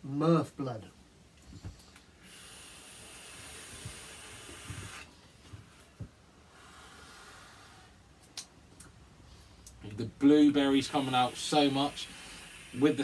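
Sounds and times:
breath blowing out: 1.6s - 5.2s, 6.4s - 8.0s, 11.0s - 13.0s
hiss of air drawn through vape: 1.6s - 8.0s, 10.6s - 13.0s.

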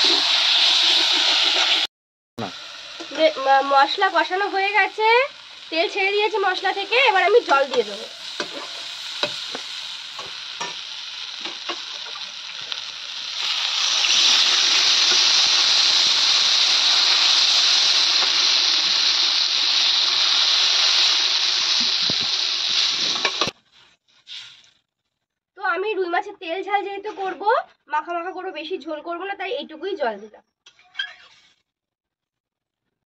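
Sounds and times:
water poured into hot oil: 0.0s - 1.9s, 8.2s - 23.6s
spice paste frying in oil: 0.0s - 24.7s
loud steady sizzle: 0.0s - 24.8s
spatula scraping a pan: 7.5s - 10.8s.

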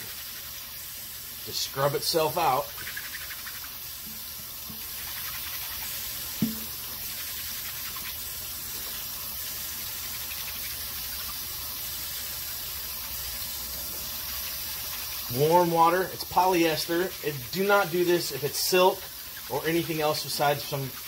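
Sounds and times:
faucet running into sink: 0.0s - 21.0s
short knock: 6.4s - 6.7s.

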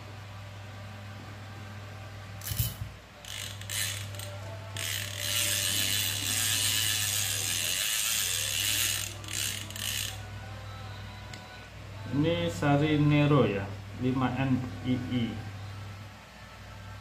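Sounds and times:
fishing reel ratcheting click: 2.4s - 10.2s.

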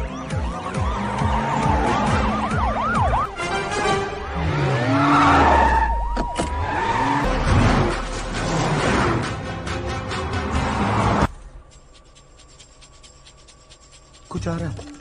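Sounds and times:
police sirens wailing: 0.0s - 8.0s
car engines revving: 0.0s - 11.7s.

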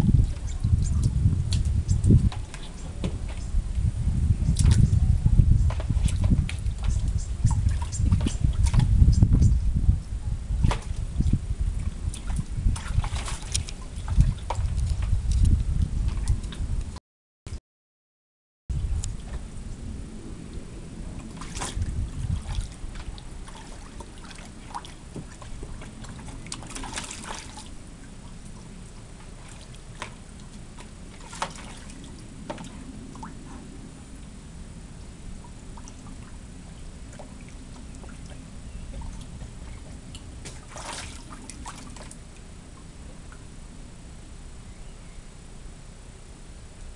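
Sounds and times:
low rumble: 0.0s - 17.0s, 18.7s - 46.9s
dog pawing water splashing: 0.1s - 3.6s, 4.5s - 9.1s, 10.6s - 16.6s, 21.0s - 33.7s, 35.4s - 43.4s.

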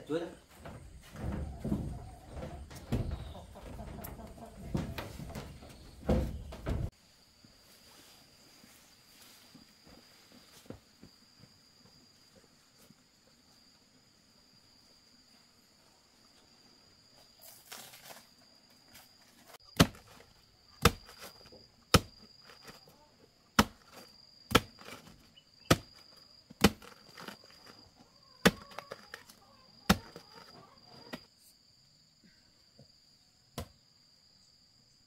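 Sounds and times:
insects chirring: 0.0s - 35.0s
blade chopping plant: 19.8s - 20.2s.

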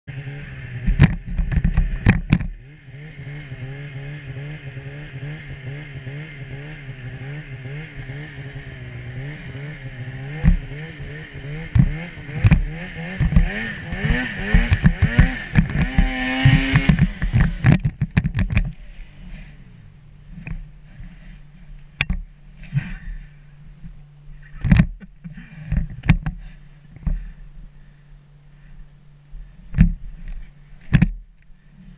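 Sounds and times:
snowmobile engine revving: 0.1s - 21.7s
sled clattering over bumps: 0.9s - 2.6s, 10.3s - 18.7s.

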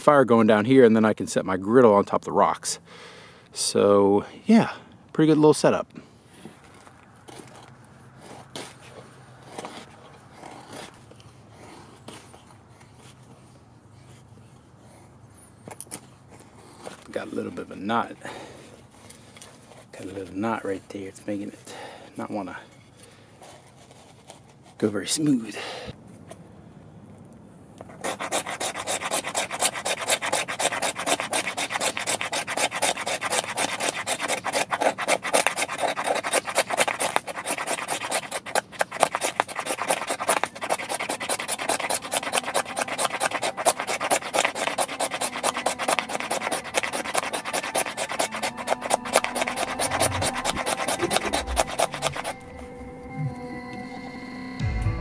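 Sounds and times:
knife scraping wooden stick: 27.9s - 53.0s.

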